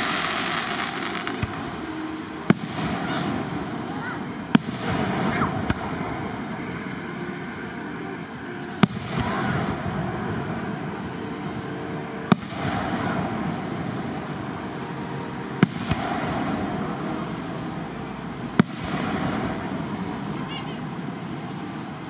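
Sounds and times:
firework shells bursting: 0.0s - 6.9s.

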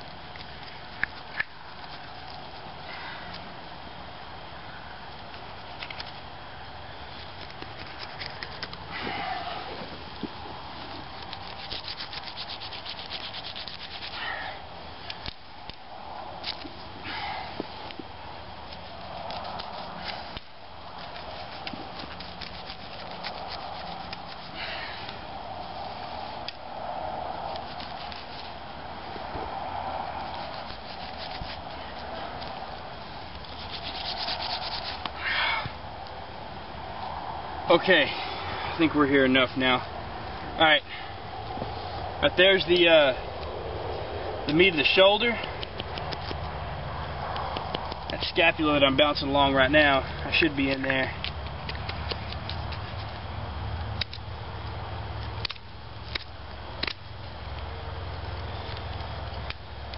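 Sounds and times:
knife rasping through hide: 10.9s - 14.4s, 18.6s - 24.7s, 30.2s - 32.5s, 33.3s - 35.1s
knife scrape: 33.5s - 35.1s.

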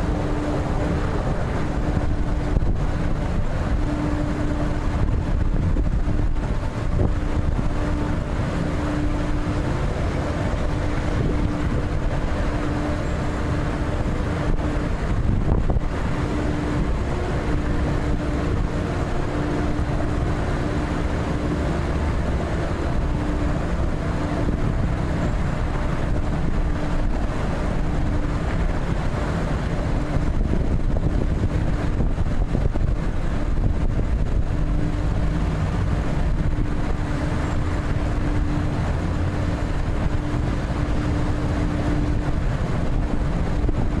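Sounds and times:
faint steady hum: 0.0s - 44.0s
freeway traffic noise: 0.0s - 44.0s.

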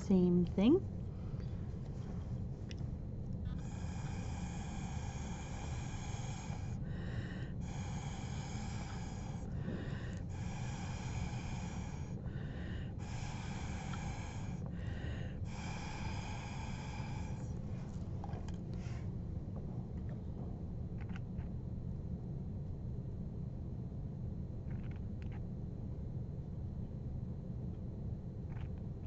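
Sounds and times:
breath blown through a straw: 3.5s - 19.0s.

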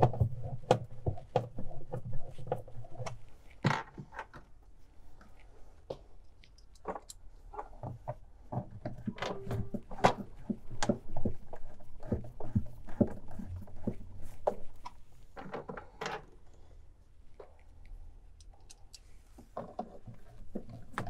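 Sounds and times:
plastic parts clicking and knocking: 5.9s - 16.6s, 18.4s - 21.0s.

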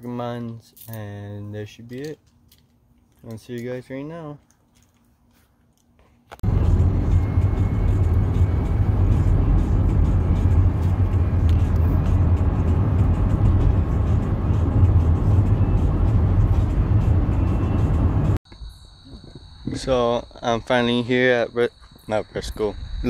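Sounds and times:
van engine and road noise: 6.2s - 18.4s.

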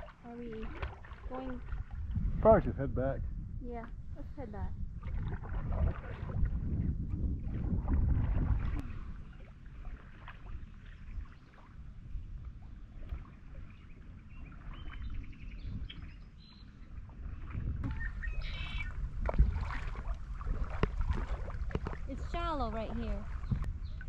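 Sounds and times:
paddle strokes splashing: 0.0s - 2.4s, 5.0s - 24.0s
birds chirping: 13.5s - 16.9s, 17.8s - 19.0s.

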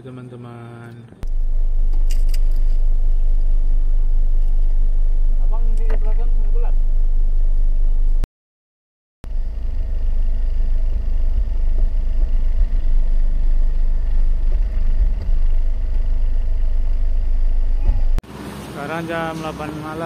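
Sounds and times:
car engine idling: 1.2s - 8.2s, 9.2s - 20.0s.

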